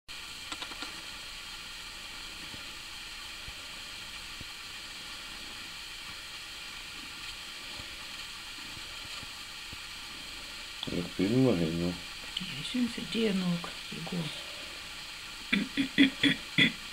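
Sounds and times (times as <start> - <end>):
recording hiss: 0.1 - 16.9.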